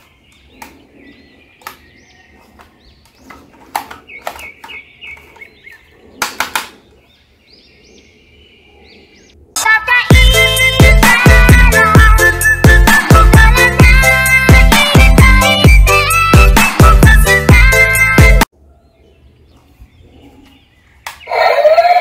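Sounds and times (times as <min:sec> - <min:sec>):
small birds chirping: 0:00.0 - 0:09.5, 0:18.6 - 0:22.0
plastic toy clicks and knocks: 0:03.3 - 0:05.5
loud music: 0:10.1 - 0:18.5.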